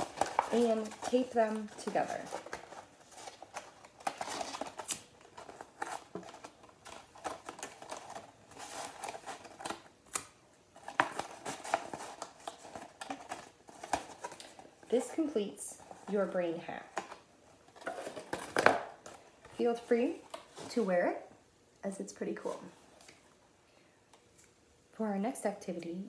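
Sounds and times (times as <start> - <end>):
paper rustling and crinkling: 0.0 - 9.9, 10.8 - 20.9.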